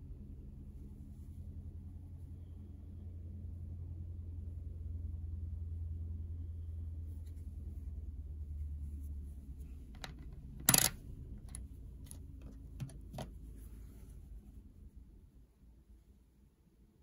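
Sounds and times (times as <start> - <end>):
coin knocking on hard surface: 10.0 - 11.6.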